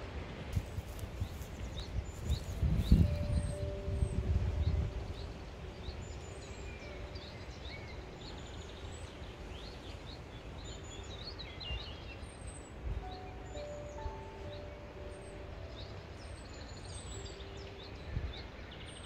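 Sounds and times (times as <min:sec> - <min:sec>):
wind rumble on microphone: 0:00.0 - 0:13.1, 0:15.3 - 0:19.0
wild birds singing and chirping: 0:00.2 - 0:19.0.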